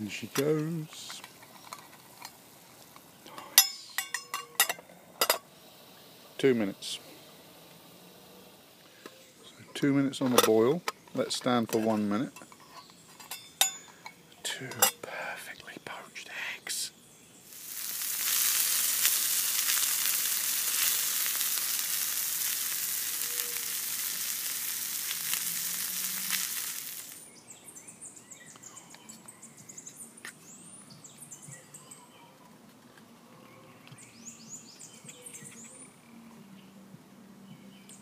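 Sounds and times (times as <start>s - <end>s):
birdsong with high chirps: 8.9s - 17.5s, 27.1s - 38.0s
food sizzling in a pan: 17.4s - 27.3s.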